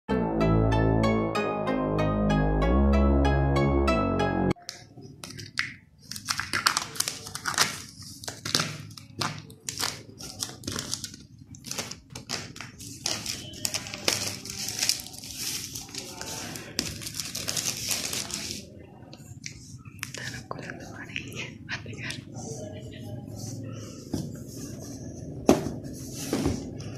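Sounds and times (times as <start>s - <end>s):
plastic wrap crinkling and tearing: 5.2s - 18.7s.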